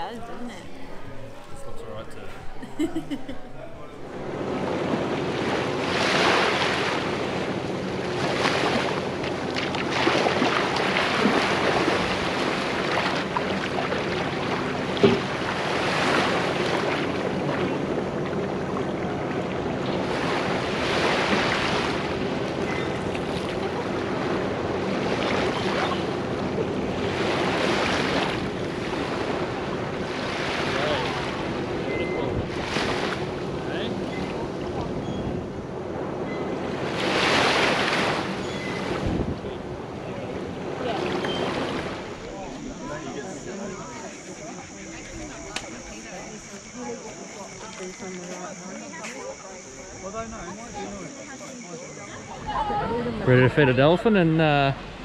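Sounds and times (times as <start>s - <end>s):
surf washing onto beach: 0.0s - 55.0s
wind on microphone: 31.3s - 43.4s.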